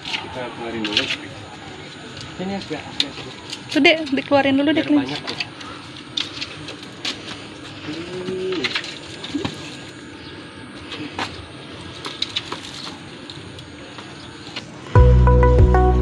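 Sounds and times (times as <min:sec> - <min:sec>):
music with steady beat: 0:14.9 - 0:16.0.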